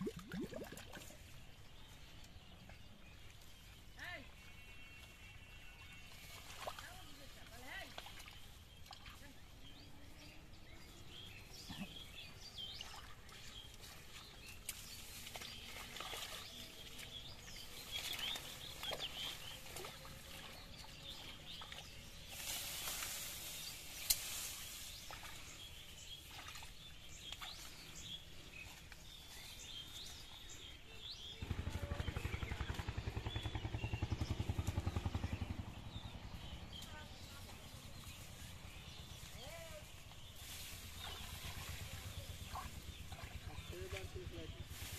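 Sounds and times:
small birds chirping: 0.0 - 44.9
rustling of grass and leaves: 5.9 - 31.5, 36.6 - 44.9.

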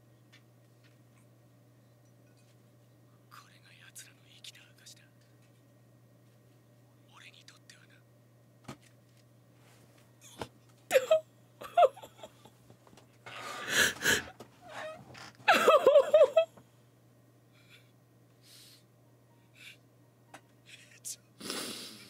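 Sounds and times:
woman crying: 10.9 - 12.5, 15.5 - 16.5
woman breathing shakily: 13.6 - 14.3.

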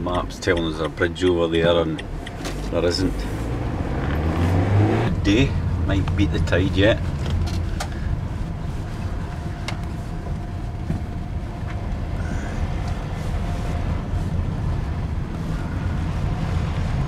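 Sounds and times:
van engine and road rumble: 0.0 - 17.0.

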